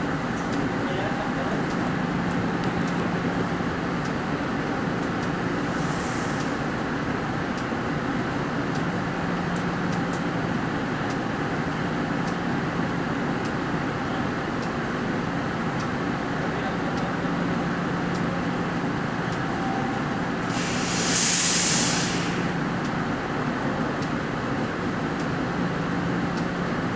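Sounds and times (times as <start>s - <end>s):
light-rail car rumble and hum: 0.0s - 26.9s
brief high hiss: 5.7s - 6.6s, 20.5s - 22.5s.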